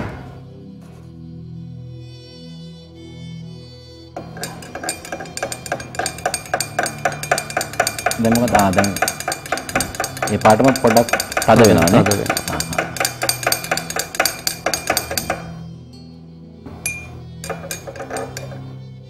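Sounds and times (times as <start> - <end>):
stick clinking against glass: 4.2 - 16.1, 16.8 - 18.8.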